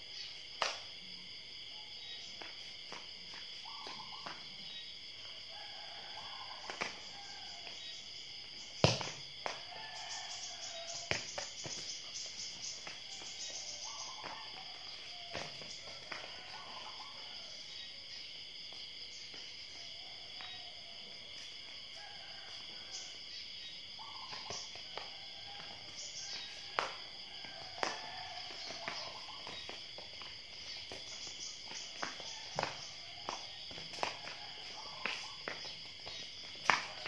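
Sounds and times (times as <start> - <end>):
insect chorus droning: 0.0 - 37.0
ball bouncing on paving: 2.4 - 4.5, 6.7 - 7.0, 8.7 - 9.8, 11.0 - 12.0, 15.2 - 16.6, 24.3 - 37.0.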